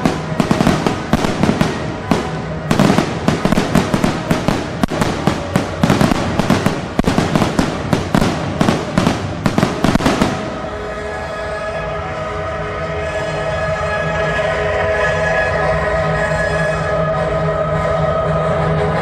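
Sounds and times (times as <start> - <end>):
fireworks bangs and crackles: 0.0 - 11.2.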